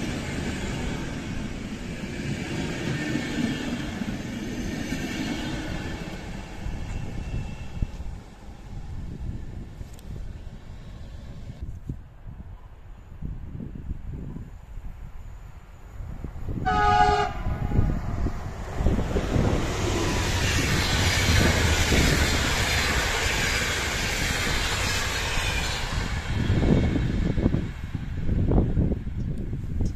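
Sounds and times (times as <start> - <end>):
train wheels rushing on rails: 0.0 - 12.0, 12.6 - 29.9
train horn chord: 16.6 - 18.1.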